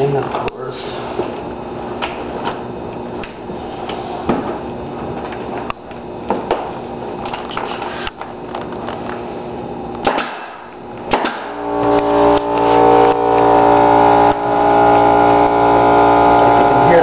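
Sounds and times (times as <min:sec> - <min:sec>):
air compressor motor humming: 0:00.0 - 0:17.0
nail gun firing: 0:10.0 - 0:11.6.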